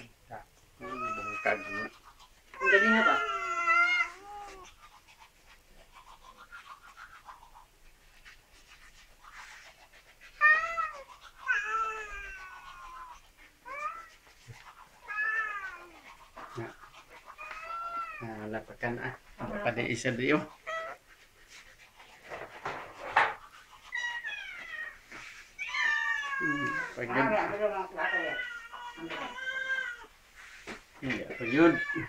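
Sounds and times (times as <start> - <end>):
cats meowing: 0.8 - 2.0, 2.6 - 4.9, 10.4 - 21.2, 22.8 - 30.2, 31.0 - 32.0.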